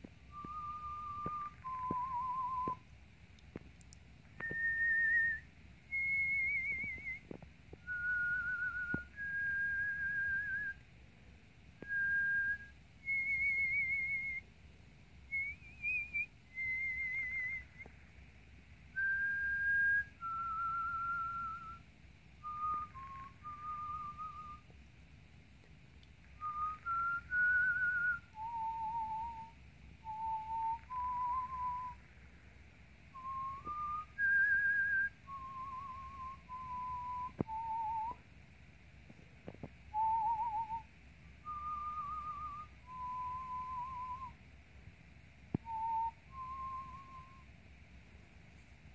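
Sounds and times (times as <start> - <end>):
person whistling a tune: 0.3 - 2.8, 4.4 - 10.8, 11.8 - 14.4, 15.3 - 17.9, 19.0 - 21.8, 22.4 - 24.7, 26.3 - 32.1, 33.1 - 38.2, 39.9 - 44.4, 45.6 - 47.5.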